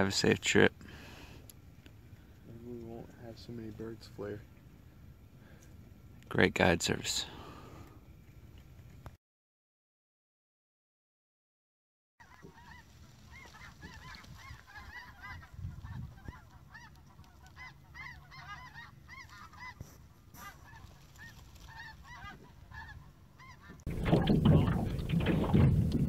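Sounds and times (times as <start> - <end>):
geese honking: 12.2 - 25.0
wind noise on microphone: 13.6 - 16.6, 22.0 - 26.0.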